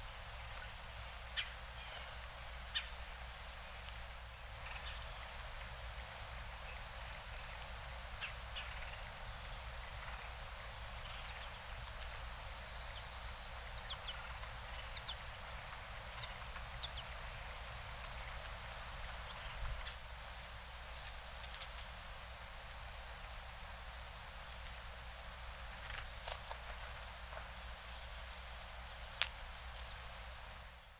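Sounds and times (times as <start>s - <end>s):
outdoor hiss: 0.0s - 30.9s
bird chip calls: 1.2s - 5.2s, 29.0s - 29.4s.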